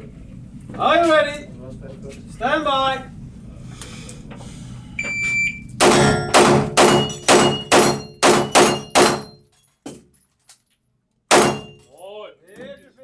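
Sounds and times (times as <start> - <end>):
pistol shots echoing: 5.8 - 9.3, 11.3 - 11.8
bullets hitting steel plates: 5.8 - 9.5, 11.3 - 11.9.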